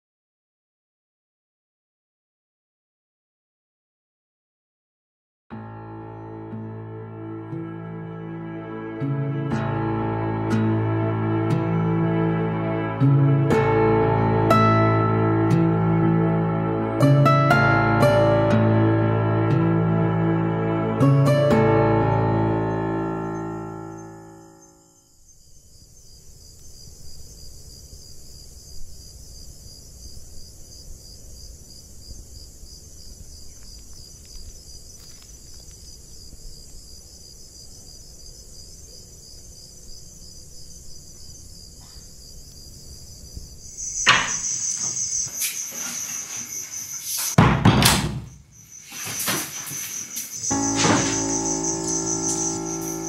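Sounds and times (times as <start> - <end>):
crickets chirping: 22.7 - 47.4, 48.0 - 53.0
loud knocks: 47.4 - 48.5, 50.6 - 51.4
heavy thud: 50.6 - 51.4.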